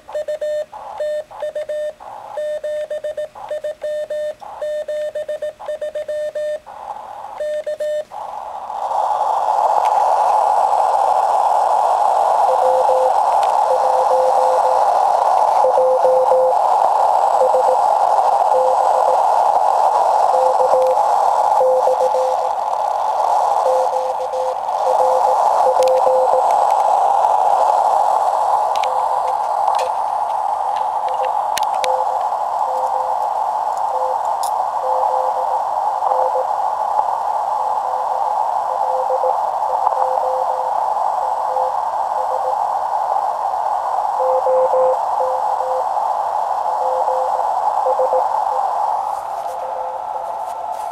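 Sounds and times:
radio band hiss: 0:00.0 - 0:50.9
faint morse code tone: 0:00.1 - 0:06.6, 0:07.4 - 0:08.1, 0:12.4 - 0:14.9, 0:15.6 - 0:16.7, 0:17.3 - 0:19.4, 0:20.2 - 0:22.6, 0:23.6 - 0:26.5, 0:28.8 - 0:29.6, 0:31.0 - 0:36.6, 0:37.9 - 0:42.6, 0:44.2 - 0:45.9, 0:46.8 - 0:50.4
radio clicks: 0:12.6 - 0:37.1, 0:38.0 - 0:40.5.

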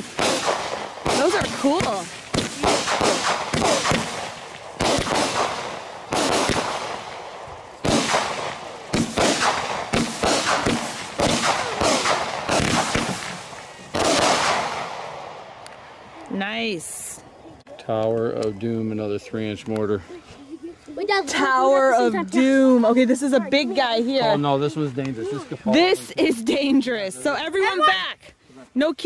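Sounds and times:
firework reports: 0:00.0 - 0:17.2.

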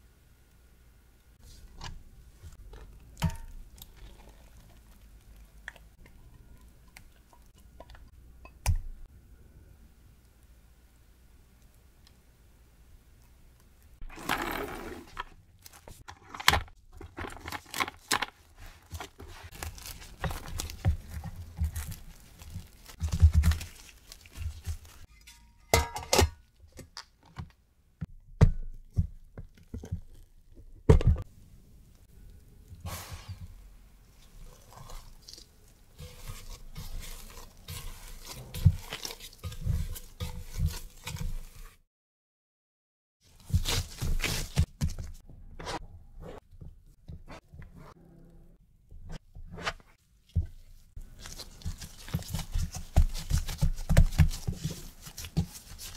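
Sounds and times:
cling wrap crinkling and tearing: 0:17.4 - 0:25.1.

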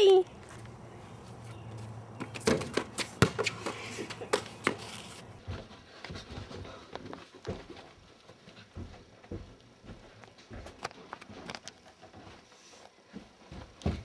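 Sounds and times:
scuffs and knocks on driveway: 0:02.2 - 0:06.7.

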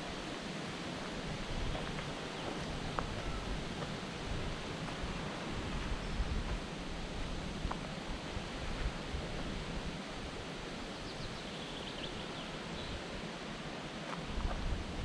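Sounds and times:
steady rushing hiss: 0:00.0 - 0:15.0
wind rumble on microphone: 0:00.0 - 0:15.0.

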